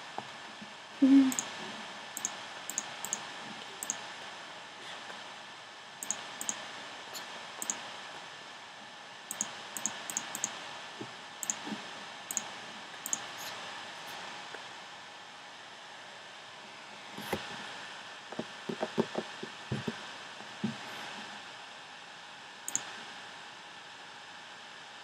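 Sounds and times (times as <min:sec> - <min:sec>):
computer mouse clicks: 0:02.2 - 0:03.2, 0:03.8 - 0:04.0, 0:06.0 - 0:06.6, 0:07.6 - 0:07.8, 0:09.3 - 0:10.6, 0:11.4 - 0:11.7, 0:12.3 - 0:13.5, 0:22.7 - 0:22.9.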